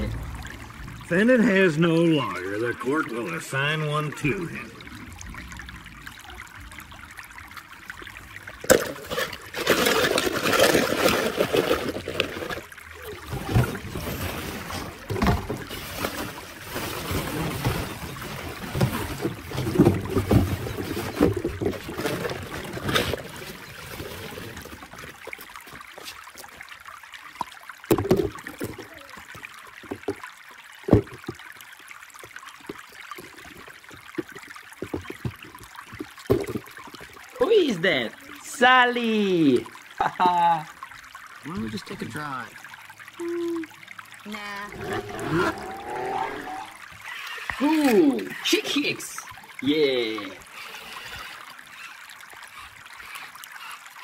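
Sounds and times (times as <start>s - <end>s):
plastic balls rustling and clattering: 8.6s - 25.2s.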